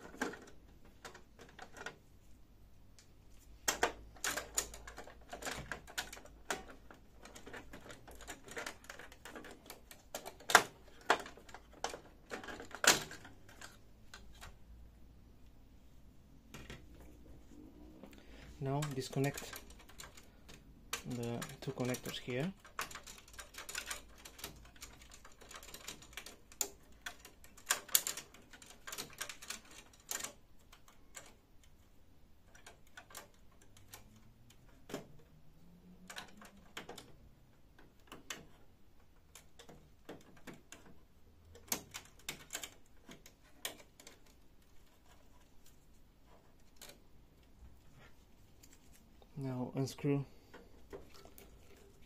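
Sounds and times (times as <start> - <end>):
plastic connectors clicking and rattling: 0.0 - 2.2, 2.9 - 14.9, 16.4 - 17.4, 18.0 - 52.0.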